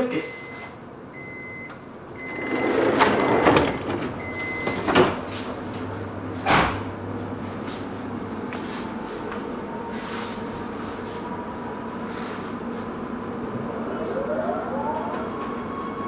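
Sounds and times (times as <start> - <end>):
sliding doors thudding shut: 2.1 - 6.9.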